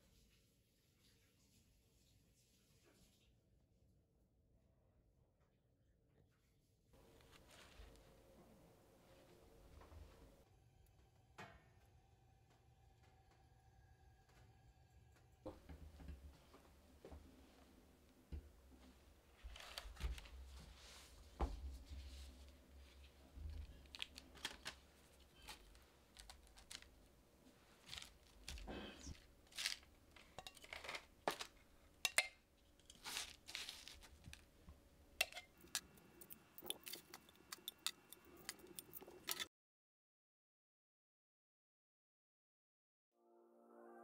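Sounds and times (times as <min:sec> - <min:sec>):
paper and plastic glove crinkling: 0:19.3 - 0:21.2, 0:22.8 - 0:31.8, 0:32.7 - 0:34.6
light clicks and scrapes: 0:35.2 - 0:39.5.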